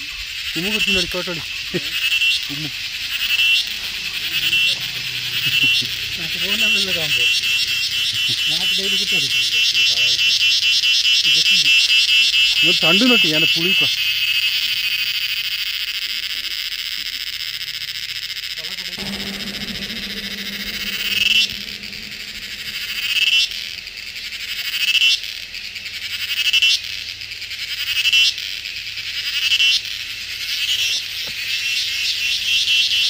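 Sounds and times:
insects buzzing: 0:00.0 - 0:15.6.

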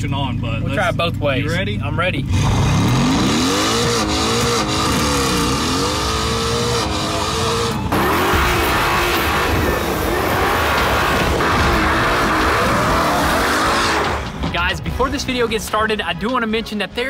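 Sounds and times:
car engine accelerating hard: 0:02.2 - 0:14.4.

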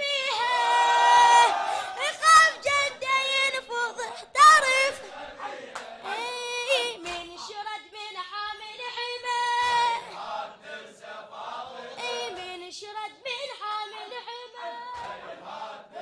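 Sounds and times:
group of voices chanting: 0:00.0 - 0:07.4, 0:09.6 - 0:12.5, 0:13.9 - 0:16.0
boy singing into microphone: 0:02.0 - 0:05.0, 0:06.0 - 0:10.1.

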